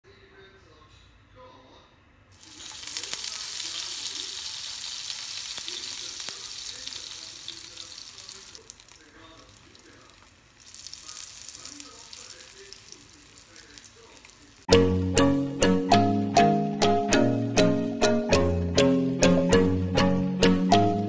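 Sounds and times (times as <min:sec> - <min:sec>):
food sizzling in hot oil: 0:02.4 - 0:14.7.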